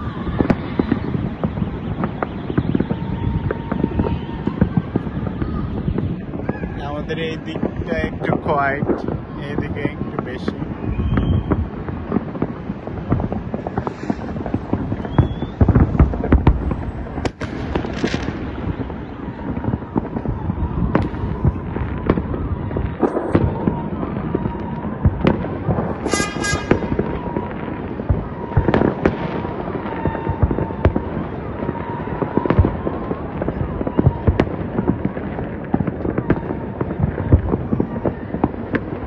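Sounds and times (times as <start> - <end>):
distant fireworks rumbling and crackling: 0.0 - 39.0
sharp firework reports: 0.0 - 39.0.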